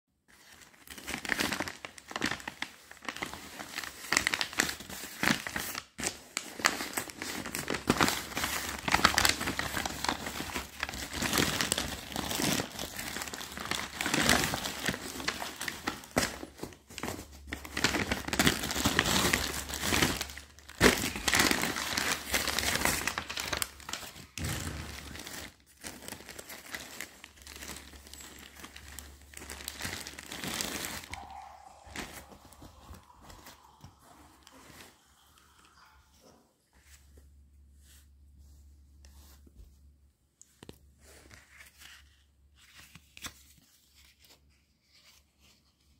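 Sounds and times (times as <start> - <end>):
paper mailer bag crinkling: 0.4 - 34.9
plastic bag crinkling: 0.4 - 36.1.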